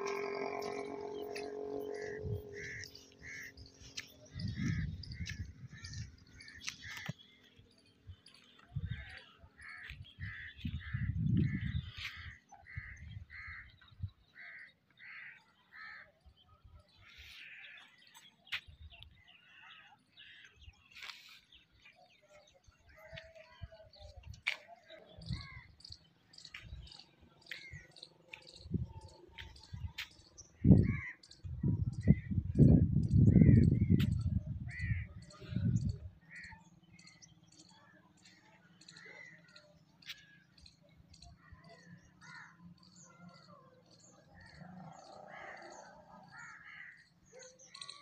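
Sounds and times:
bird calling: 0.0 - 7.2.

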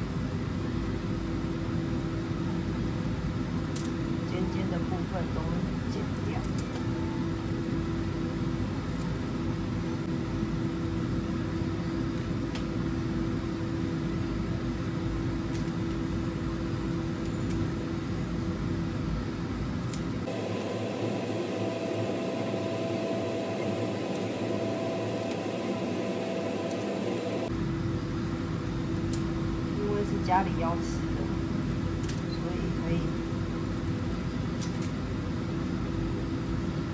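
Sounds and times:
whirring machine hum: 0.0 - 36.9.

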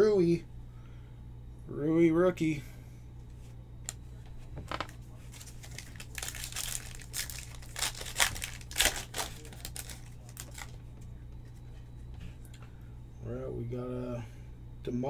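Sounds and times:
foil wrapper crinkling and tearing: 5.3 - 10.8.

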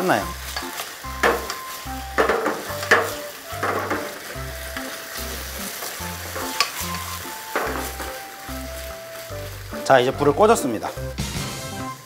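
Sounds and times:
food sizzling in frying pan: 0.0 - 12.0
spatula knocking and scraping pan: 0.5 - 8.7.

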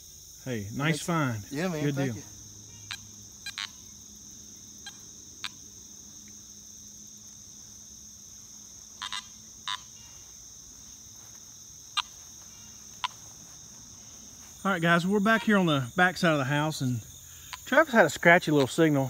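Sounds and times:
crickets chirping: 0.0 - 19.0
metal detector beeps: 9.0 - 9.9.

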